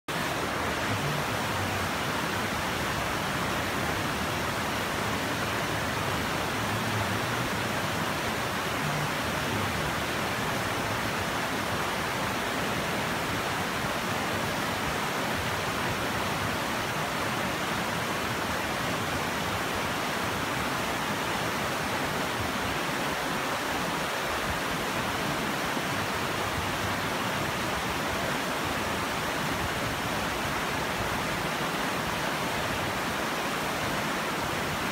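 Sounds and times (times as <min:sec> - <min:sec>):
river rapids rushing: 0:00.1 - 0:34.9.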